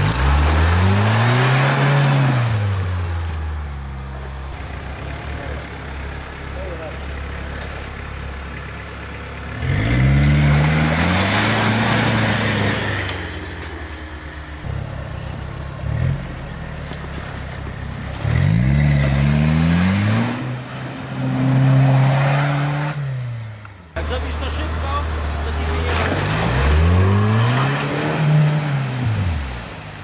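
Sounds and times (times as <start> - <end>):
diesel engine revving hard: 0.0 - 3.2, 9.4 - 13.5, 18.1 - 29.9.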